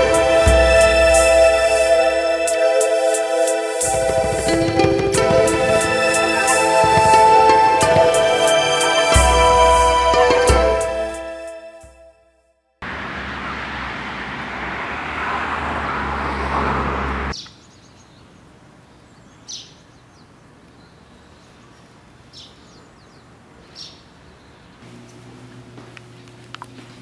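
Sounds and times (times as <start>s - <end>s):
loud rushing noise with hum: 0.0s - 8.7s
quiet street ambience: 12.8s - 27.0s.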